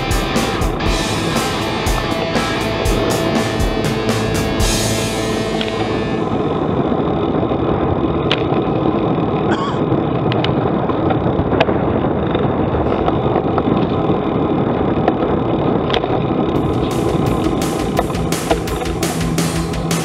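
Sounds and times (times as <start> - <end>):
wind rumble: 0.0 - 19.4
bike road noise: 0.0 - 20.0.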